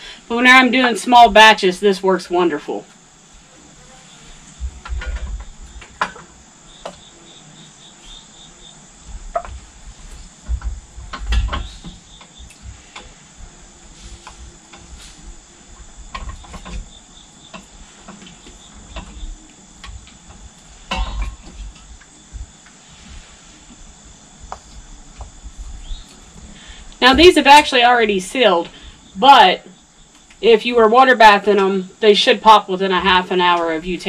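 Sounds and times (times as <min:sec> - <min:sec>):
crickets chirping: 0:00.0 - 0:34.0
jars thumping down: 0:20.9 - 0:21.5.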